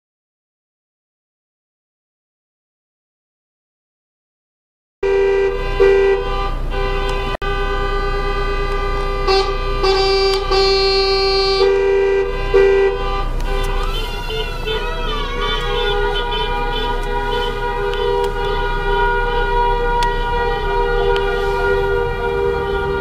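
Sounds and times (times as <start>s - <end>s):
car horns honking: 5.0s - 23.0s
tone bending in pitch: 13.6s - 19.0s.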